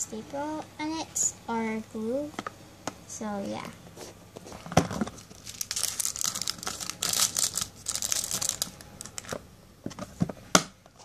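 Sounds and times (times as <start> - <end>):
plastic beads pouring and rattling: 5.3 - 9.3.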